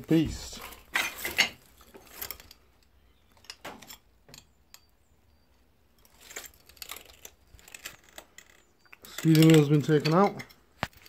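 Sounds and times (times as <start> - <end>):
faint high chirps: 4.4 - 5.9.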